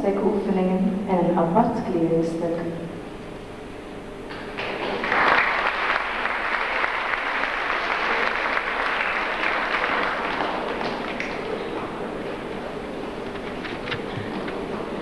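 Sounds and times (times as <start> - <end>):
audience applauding: 4.3 - 12.2.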